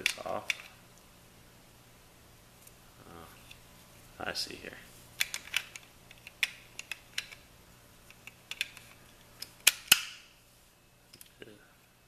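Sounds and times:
loud plastic snaps: 8.1s - 10.2s.

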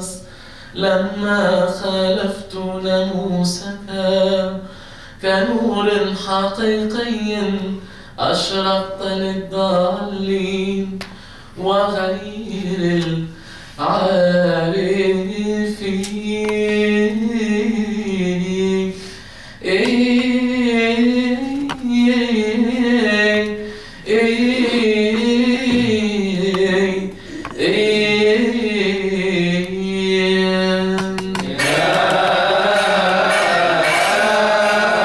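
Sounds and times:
man chanting unaccompanied: 19.6s - 35.0s.

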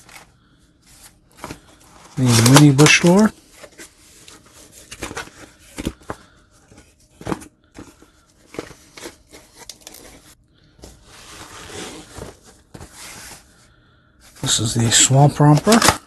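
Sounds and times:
packing peanuts rustling: 1.5s - 3.3s.

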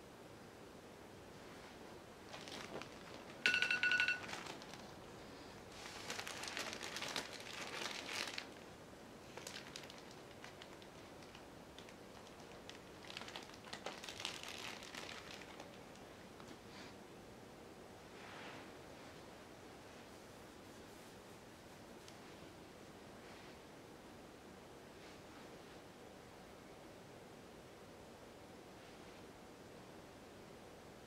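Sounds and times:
plastic bags crinkling: 2.2s - 16.0s
phone timer alarm beeps: 3.5s - 4.3s.

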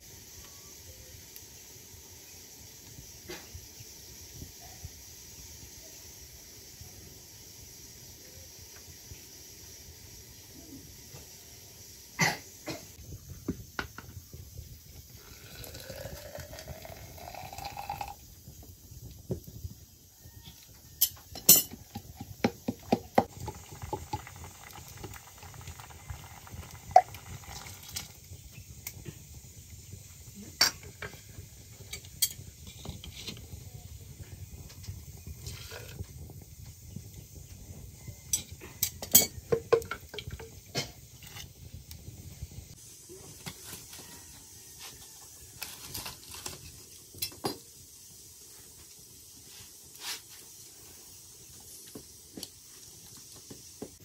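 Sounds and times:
cooking pot and utensils clinking: 21.0s - 28.2s, 30.6s - 31.2s, 31.8s - 33.4s, 38.3s - 41.4s, 45.6s - 47.7s.

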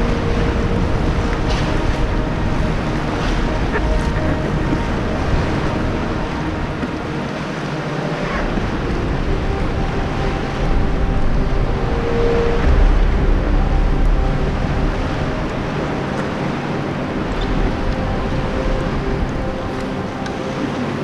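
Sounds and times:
water splashing along kayak hull: 0.0s - 21.0s
wind buffeting microphone: 0.0s - 21.0s.

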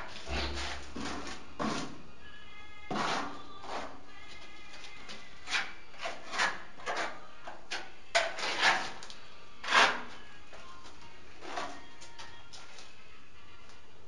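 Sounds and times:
tile scraping and rubbing: 0.0s - 1.9s, 2.9s - 3.9s, 5.4s - 7.2s, 8.2s - 10.2s.

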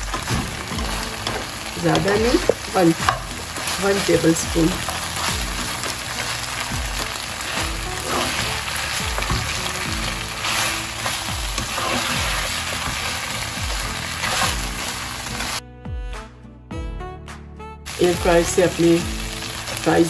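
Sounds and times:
chicken sizzling in a frying pan: 0.0s - 15.6s, 17.9s - 20.0s
background music with slow beat: 0.0s - 20.0s
spatula stirring: 0.1s - 15.0s.

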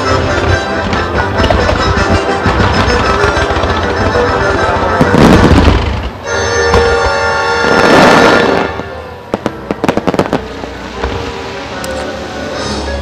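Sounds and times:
music: 0.0s - 13.0s.

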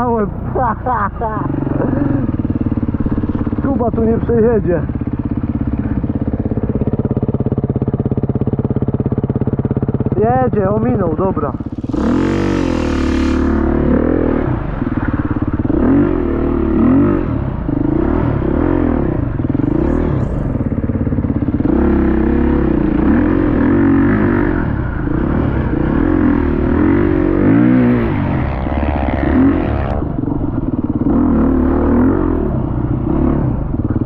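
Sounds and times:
dirt bike engine revving: 0.0s - 34.0s.

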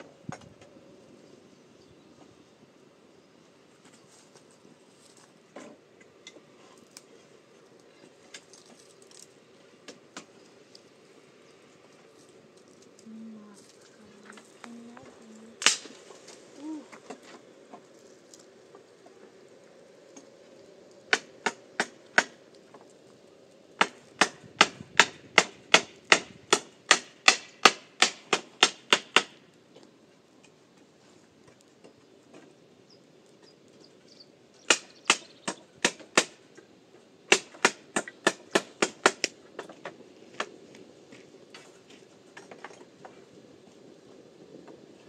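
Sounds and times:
hammer driving nails into wood: 23.8s - 29.4s, 37.3s - 39.3s.

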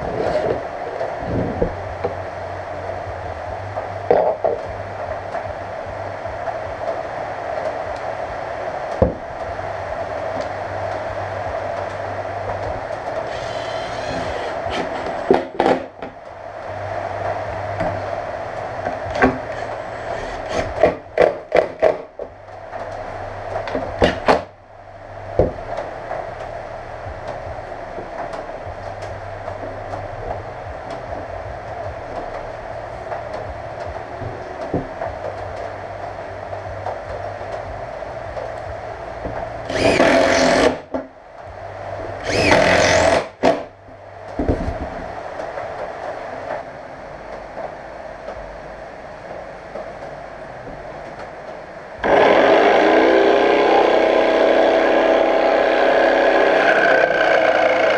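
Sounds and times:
steady hum: 0.0s - 57.9s
electric jigsaw running: 13.3s - 14.8s, 39.7s - 40.8s, 42.2s - 43.3s, 52.0s - 57.9s
power tool bursts: 39.7s - 40.8s, 42.2s - 43.3s, 52.0s - 57.9s.

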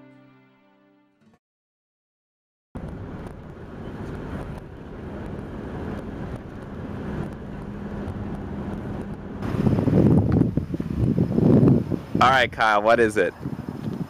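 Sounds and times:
tyre and engine rumble: 2.8s - 14.0s
wind buffeting microphone: 2.8s - 14.0s.

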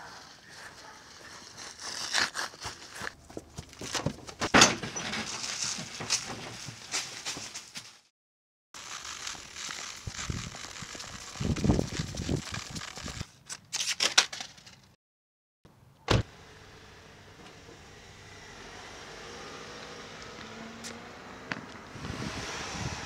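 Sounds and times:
crackling and rustling: 0.0s - 8.1s, 8.8s - 14.9s
car door shutting: 16.1s - 16.3s.

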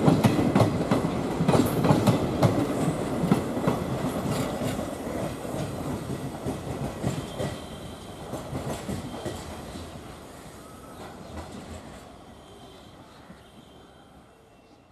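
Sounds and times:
train wheels clattering over track: 0.0s - 10.0s.

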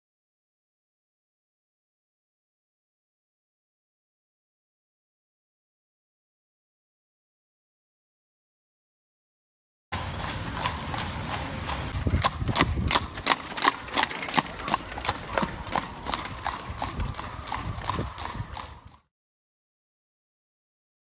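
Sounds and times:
hooves clip-clopping on cobblestones: 10.0s - 19.1s.

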